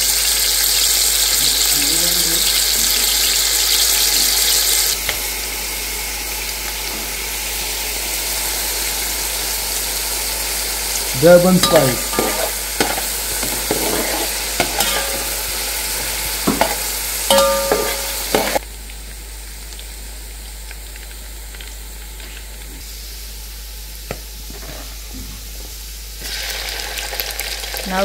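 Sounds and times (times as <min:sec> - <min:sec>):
onions sizzling in hot oil: 0:00.0 - 0:28.0
metal spoon scraping a pot: 0:11.6 - 0:15.7.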